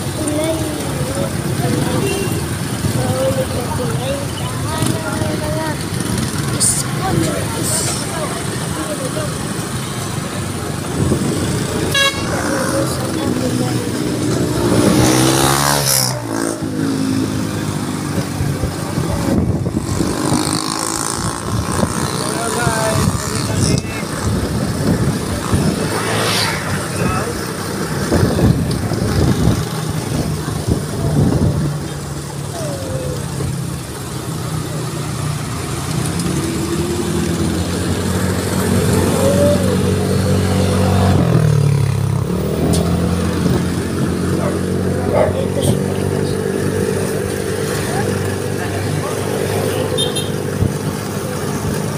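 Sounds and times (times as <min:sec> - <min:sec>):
small motorcycle running: 0:00.0 - 0:51.9
wind and road noise: 0:00.0 - 0:51.9
vehicle horn: 0:11.9 - 0:12.6, 0:49.9 - 0:50.3
wind buffeting microphone: 0:18.0 - 0:31.9.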